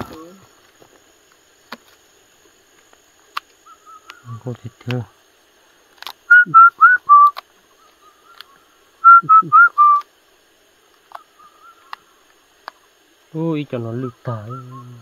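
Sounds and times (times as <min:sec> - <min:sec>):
four-note whistle: 0:06.3 - 0:07.4, 0:09.0 - 0:10.0.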